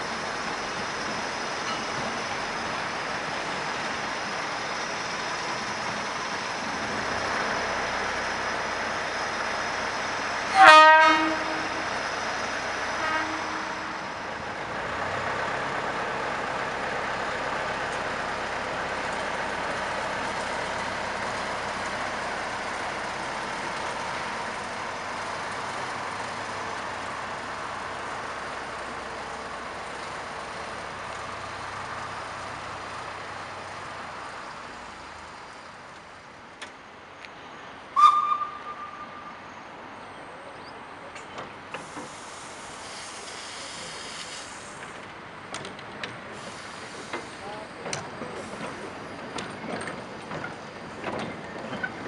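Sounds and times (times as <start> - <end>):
steam locomotive whistle toots: 10.5 - 12.0, 12.8 - 14.3, 38.0 - 39.5.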